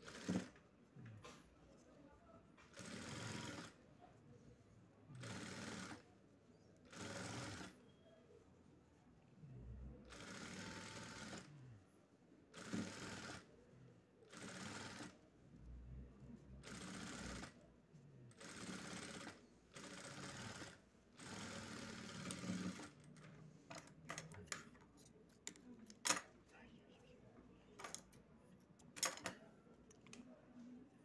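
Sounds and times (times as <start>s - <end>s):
sewing machine stitching: 0.0s - 0.6s, 2.7s - 3.8s, 5.1s - 6.0s, 6.8s - 7.8s, 10.0s - 11.5s, 12.5s - 13.5s, 14.3s - 15.2s, 16.6s - 17.6s, 18.3s - 24.6s.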